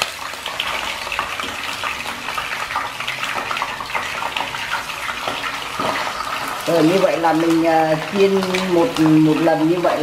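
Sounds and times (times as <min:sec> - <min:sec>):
fish sizzling in oil: 0:00.0 - 0:10.0.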